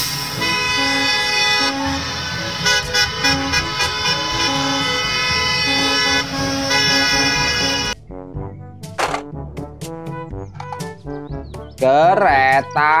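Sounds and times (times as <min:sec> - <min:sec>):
buzzy horn-like tone: 0:00.2 - 0:08.0.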